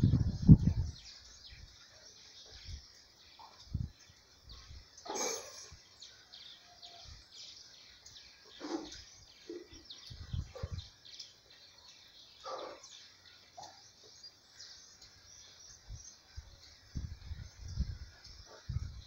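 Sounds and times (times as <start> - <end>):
small birds chirping: 0.0 - 19.0
lower bird calls: 4.5 - 7.3, 8.0 - 19.0.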